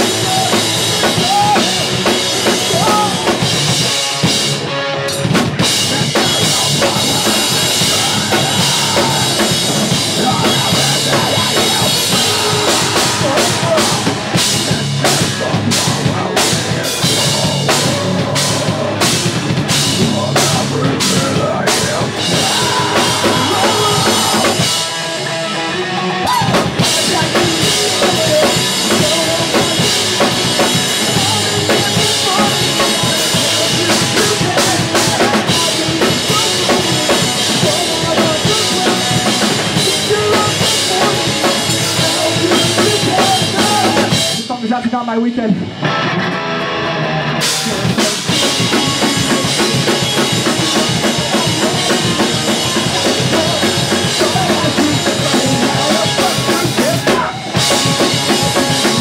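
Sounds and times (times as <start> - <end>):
loud drum kit: 0.0 - 59.0
pop punk band playing live: 0.0 - 59.0.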